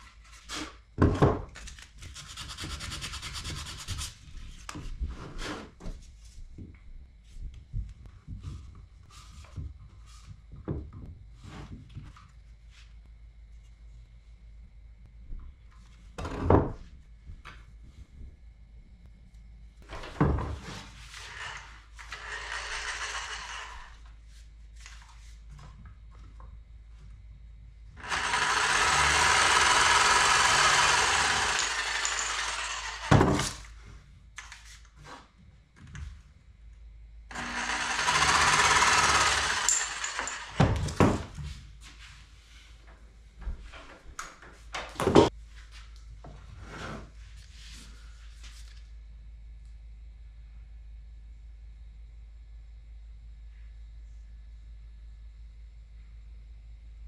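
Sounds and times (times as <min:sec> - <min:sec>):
jigsaw cutting wood: 0:21.2 - 0:24.0, 0:28.0 - 0:33.6, 0:37.3 - 0:41.0.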